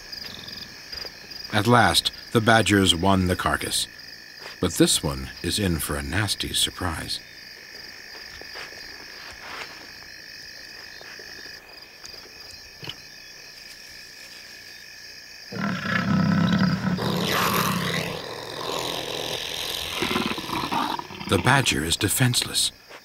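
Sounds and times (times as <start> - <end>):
night insects chorus: 0.0 - 23.0
animals snarling and growling: 15.5 - 21.7.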